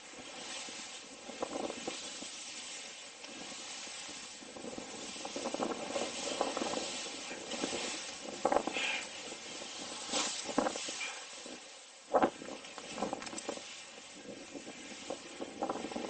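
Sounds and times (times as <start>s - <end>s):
snowboard carving scrapes: 0.0s - 11.1s
snowboard hissing through snow: 0.0s - 11.6s.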